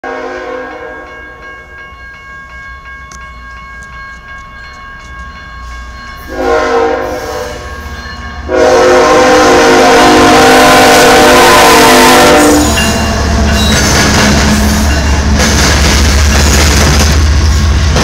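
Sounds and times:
train air horn: 0.0 - 1.1, 6.3 - 7.8, 8.5 - 13.0.

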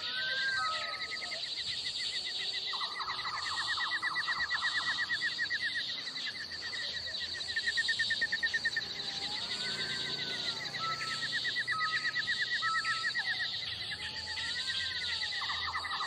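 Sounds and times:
cat yowling: 0.0 - 1.4, 8.9 - 16.0
fast repeated chirping: 0.0 - 16.0.

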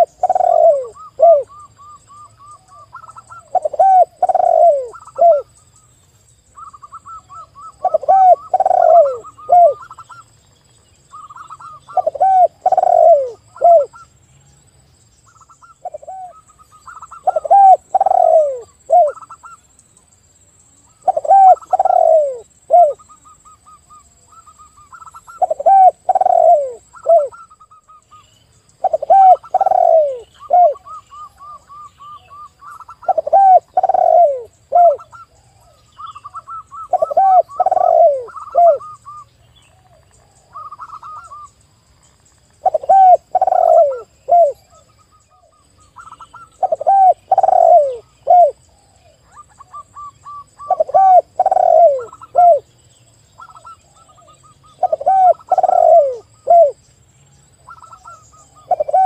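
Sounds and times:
dove cooing: 0.0 - 5.5, 6.6 - 10.3, 11.1 - 14.0, 15.6 - 19.6, 21.0 - 28.0, 28.8 - 41.5, 42.6 - 52.7, 53.4 - 56.8, 57.7 - 59.0
quick high dove coos: 6.9 - 10.2.

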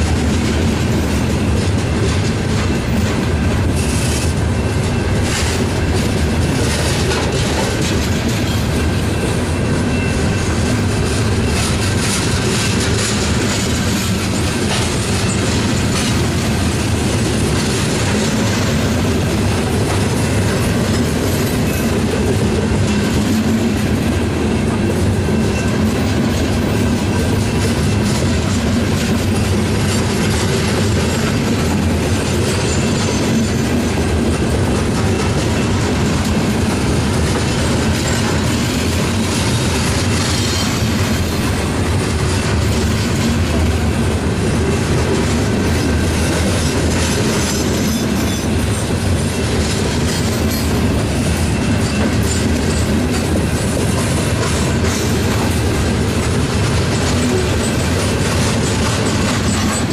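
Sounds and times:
train wheels rumbling on rails: 0.0 - 59.9
wheels clicking over rail joints: 0.0 - 59.9
faint high wheel squeal: 8.5 - 10.7.

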